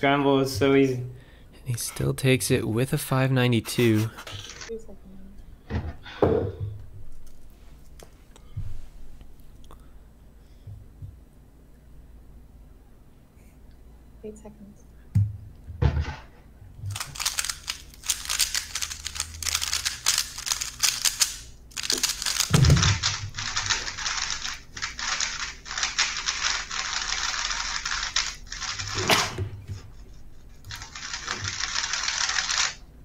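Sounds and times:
speed cube clicking turns: 0:16.9 - 0:29.0, 0:30.7 - 0:32.8.

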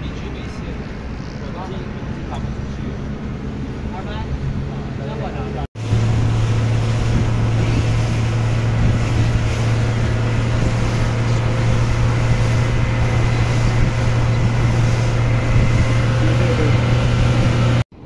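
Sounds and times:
boat engine running: 0:00.0 - 0:17.9
wind noise: 0:05.8 - 0:17.8.

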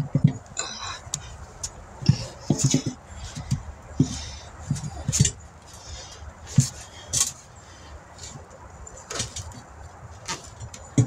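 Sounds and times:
shoes thumping on tire: 0:00.0 - 0:05.4, 0:06.4 - 0:07.4
tire bead scraping rim: 0:00.0 - 0:11.0.

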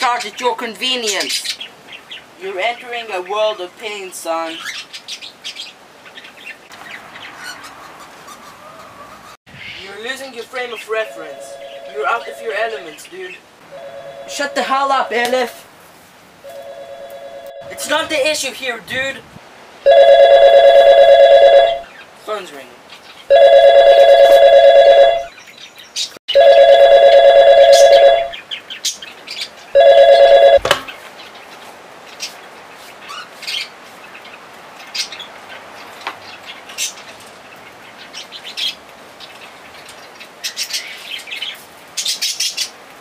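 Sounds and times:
telephone ringing: 0:11.0 - 0:12.7, 0:13.7 - 0:15.2, 0:16.5 - 0:18.1, 0:19.9 - 0:21.9, 0:23.3 - 0:25.3, 0:26.3 - 0:28.4, 0:29.8 - 0:30.7.

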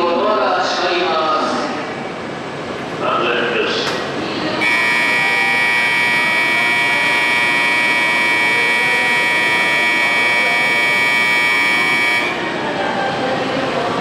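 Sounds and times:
electronic departure signal ringing: 0:04.6 - 0:12.6.

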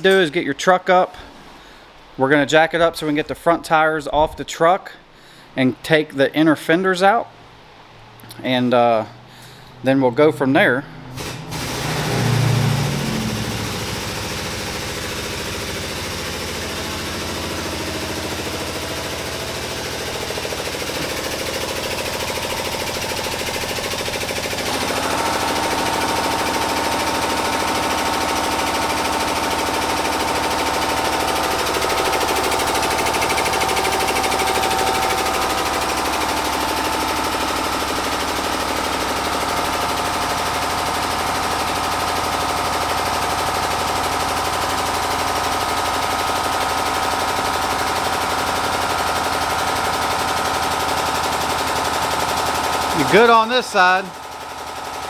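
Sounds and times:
high-pitched whine: 0:10.8 - 0:20.4
air jack pulsing: 0:11.1 - 0:55.0.

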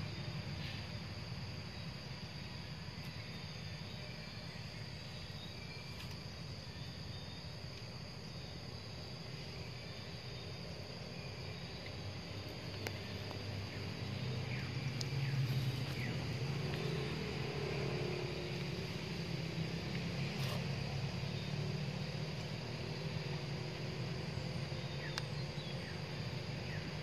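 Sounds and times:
high-pitched insect drone: 0:00.0 - 0:27.0
low engine hum: 0:09.3 - 0:27.0.

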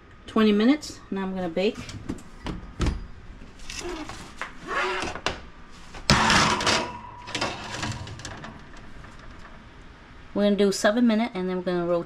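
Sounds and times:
metal pan scraping oven rack: 0:06.1 - 0:09.6
metal pan rattling: 0:06.1 - 0:09.7.

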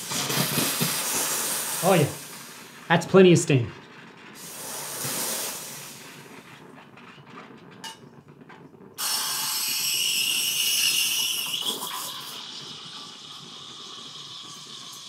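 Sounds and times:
steam wand hissing: 0:00.0 - 0:02.8, 0:04.4 - 0:06.4, 0:09.0 - 0:15.0.

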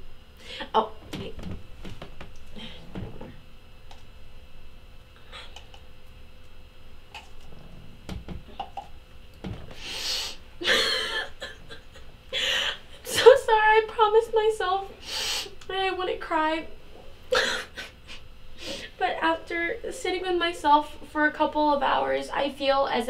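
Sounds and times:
woman sniffing and sobbing: 0:09.8 - 0:11.6.

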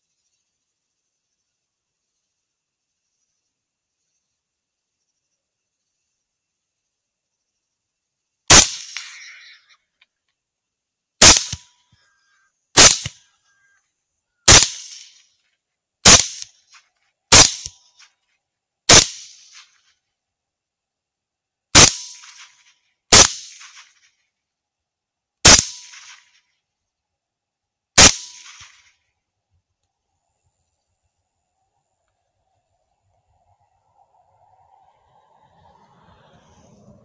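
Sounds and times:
rifle shots cracking: 0:08.5 - 0:09.5, 0:11.2 - 0:11.7, 0:12.8 - 0:13.2, 0:14.5 - 0:15.2, 0:16.0 - 0:16.6, 0:17.3 - 0:17.8, 0:18.9 - 0:19.7, 0:21.8 - 0:24.0, 0:25.4 - 0:26.3, 0:28.0 - 0:28.8.

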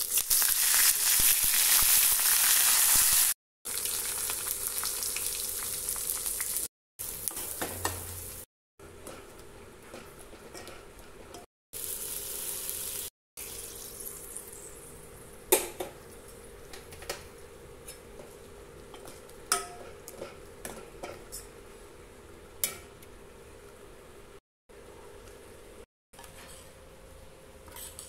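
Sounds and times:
oil sizzling: 0:00.0 - 0:08.5, 0:11.8 - 0:15.4.

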